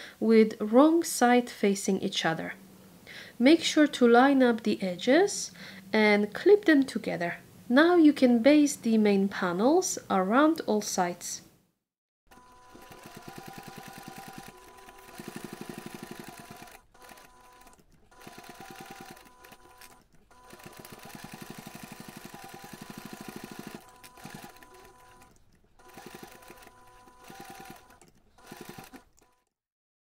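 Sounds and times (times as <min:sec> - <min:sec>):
sewing machine needle clattering: 0:12.3 - 0:29.5.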